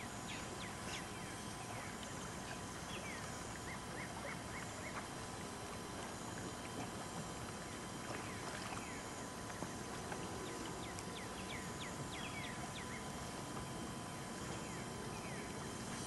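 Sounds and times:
water splashing: 2.0s - 10.8s.

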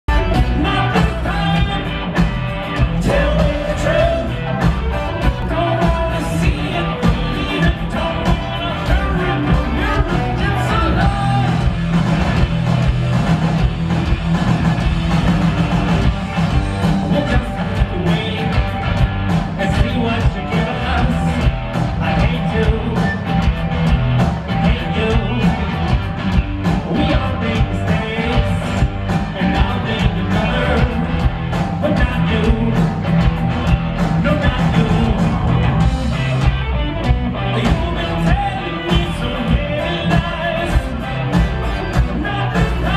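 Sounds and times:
live rock band through pa: 0.0s - 42.9s
person singing: 0.1s - 11.7s, 16.8s - 18.9s, 19.5s - 23.3s, 24.5s - 25.8s, 26.8s - 33.0s, 34.1s - 35.8s, 37.4s - 42.9s.

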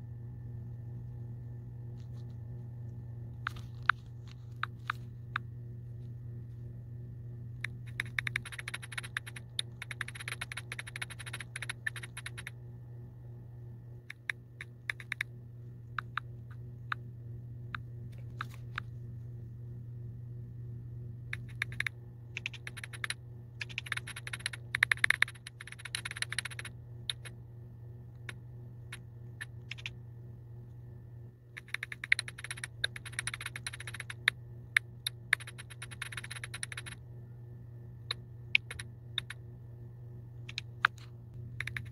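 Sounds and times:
low hum: 0.0s - 41.9s
keyboard typing clicks: 7.6s - 12.6s, 14.0s - 15.3s, 15.9s - 17.0s, 17.7s - 18.9s, 21.3s - 27.4s, 28.1s - 30.0s, 31.6s - 37.0s, 38.1s - 39.4s, 40.4s - 41.9s.

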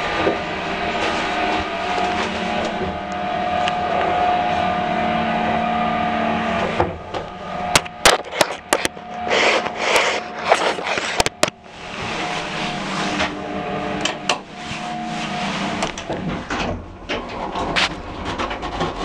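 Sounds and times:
lift mechanical hum with whine: 0.0s - 19.0s
sharp clicks and rattling clatters: 15.8s - 19.0s.

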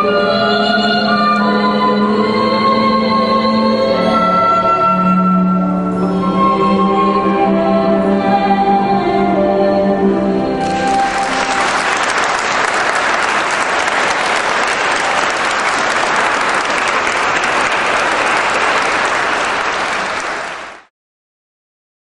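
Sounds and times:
choir singing a chord: 0.0s - 12.1s
audience applauding: 10.6s - 20.9s.

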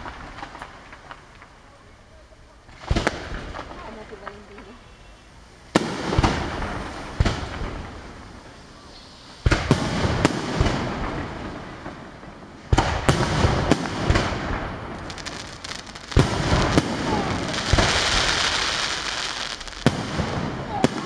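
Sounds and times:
fireworks shells bursting: 12.8s - 21.0s.

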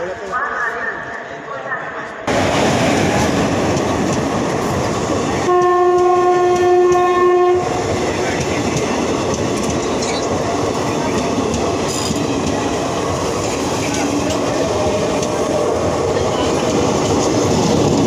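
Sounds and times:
train wheels rumbling on rails: 2.3s - 18.0s
train horn blast: 5.4s - 7.7s.

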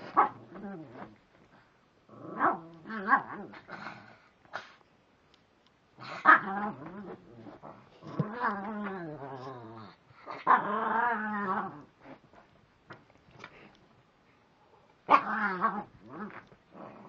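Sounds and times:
small dog growling: 0.0s - 1.2s, 6.0s - 12.2s, 15.1s - 17.0s.

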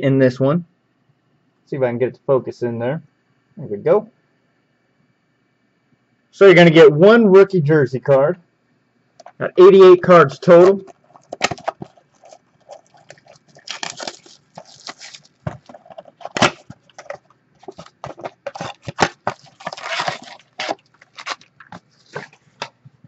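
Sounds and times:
foil card packs rustling: 10.4s - 22.9s.

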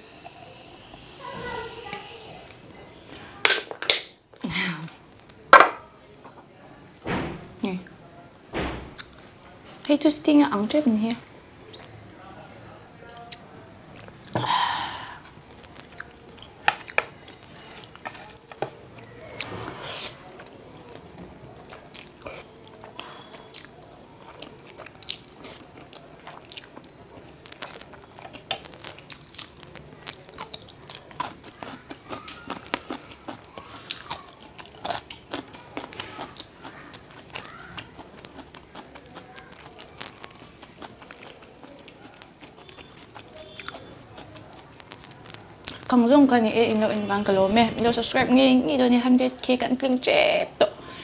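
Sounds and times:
chewing and crunching: 15.2s - 46.0s.

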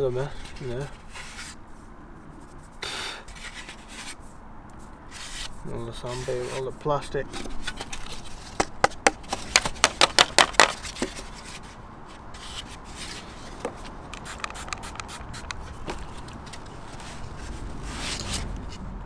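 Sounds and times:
sharp taps: 8.6s - 10.8s.

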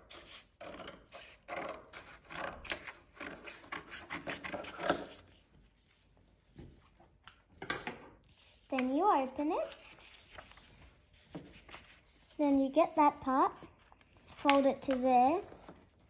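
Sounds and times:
scissors snipping paper: 13.9s - 15.7s.

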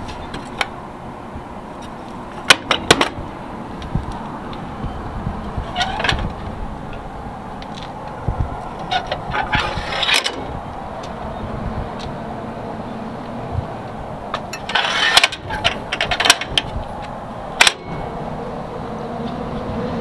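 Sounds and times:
steady low rumble: 0.0s - 20.0s
clicks of metal latches: 17.6s - 18.0s.

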